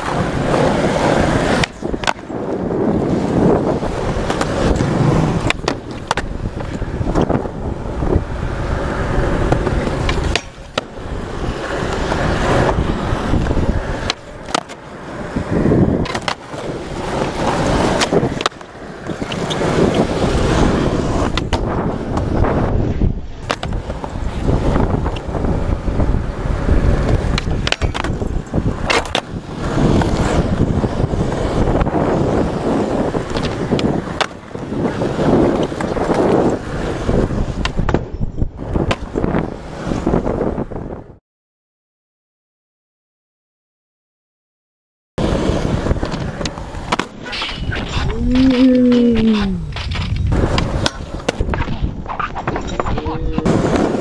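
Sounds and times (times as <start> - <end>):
skateboard deck clacks: 0.0 - 7.6, 8.8 - 22.4, 23.4 - 25.4, 26.5 - 31.9, 38.7 - 39.2, 45.2 - 54.0
skateboard wheels rolling: 0.0 - 41.2, 45.2 - 54.0.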